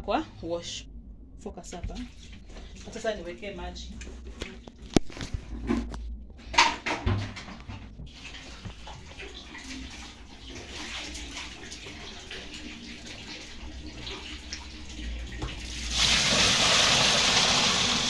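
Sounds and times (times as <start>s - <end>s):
water pouring into tub: 8.1s - 18.0s
water trickling: 8.1s - 18.0s.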